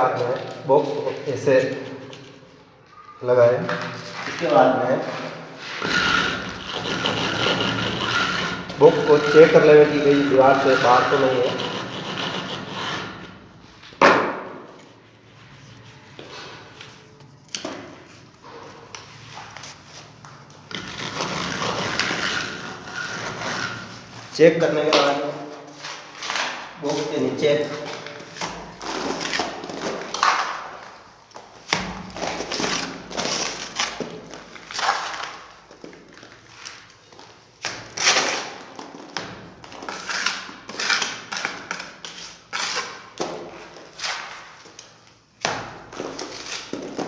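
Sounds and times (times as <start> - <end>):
gritty mortar scraping: 4.0 - 13.4, 20.7 - 30.6.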